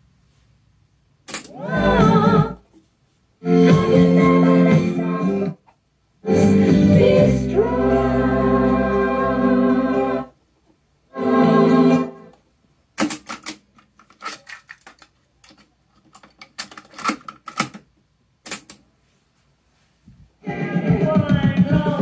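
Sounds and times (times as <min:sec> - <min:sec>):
sung music from cassette: 0:01.5 - 0:02.6, 0:03.4 - 0:10.4, 0:11.1 - 0:12.4, 0:20.4 - 0:22.0.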